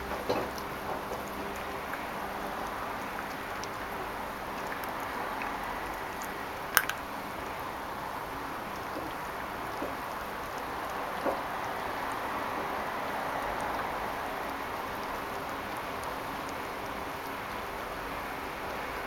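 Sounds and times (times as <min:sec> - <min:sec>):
puppy crunching bone: 0:06.7 - 0:07.0.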